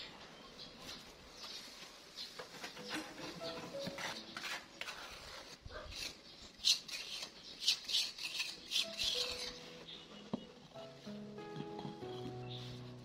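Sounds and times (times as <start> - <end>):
quiet background music: 2.5 - 13.0
trowel scraping mortar: 2.8 - 9.8.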